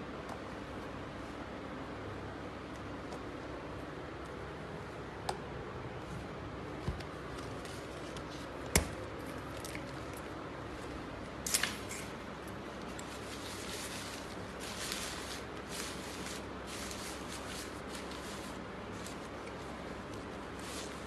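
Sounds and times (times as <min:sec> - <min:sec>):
steady background hiss: 0:00.0 - 0:21.0
umbrella fabric rustling: 0:09.8 - 0:21.0.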